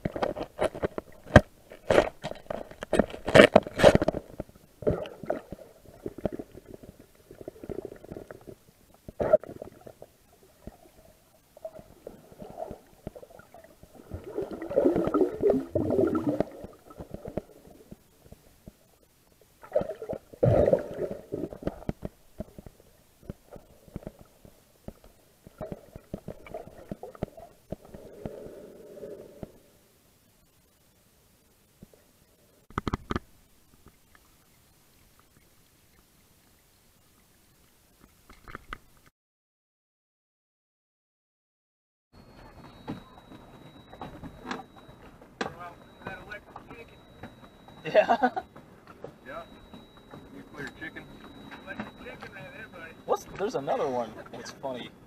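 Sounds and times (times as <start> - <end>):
underwater gurgling and rumbling: 0.0 - 30.4
underwater clicks: 19.6 - 28.6, 32.7 - 34.3.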